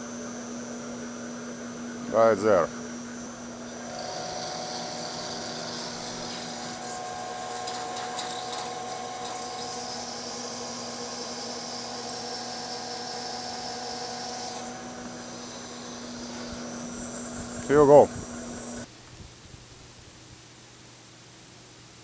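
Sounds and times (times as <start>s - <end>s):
lathe spindle humming: 0.0s - 18.9s
cutting tool hissing on metal: 3.8s - 18.8s.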